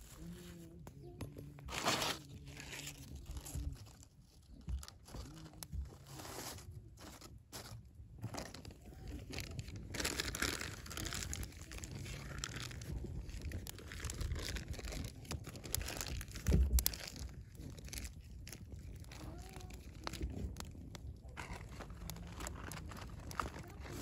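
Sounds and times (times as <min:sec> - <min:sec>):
fire crackling: 0:09.6 - 0:23.8.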